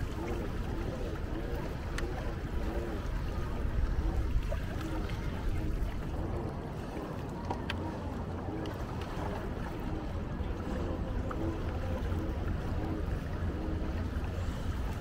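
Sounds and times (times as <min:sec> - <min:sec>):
faint pulsing hum: 0:00.0 - 0:15.0
water swishing along hull: 0:00.0 - 0:15.0.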